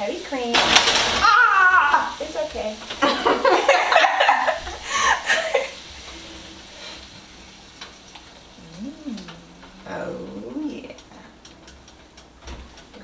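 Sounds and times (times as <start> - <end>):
vegetables sizzling in a pan: 0.0 - 12.2
laughter: 3.0 - 5.8
low wavering hum-like voice: 8.6 - 11.3.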